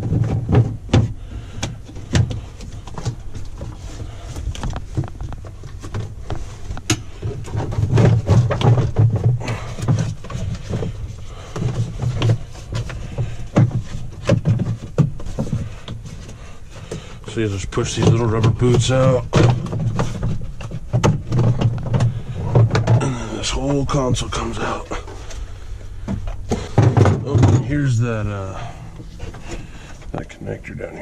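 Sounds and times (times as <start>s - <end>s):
plastic clicks and scraping: 0.0s - 17.1s
dull thumps: 0.0s - 30.4s.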